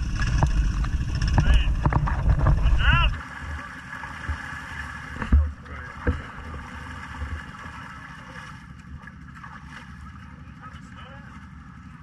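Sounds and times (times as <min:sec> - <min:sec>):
muddy water sloshing and splashing: 0:00.0 - 0:12.0.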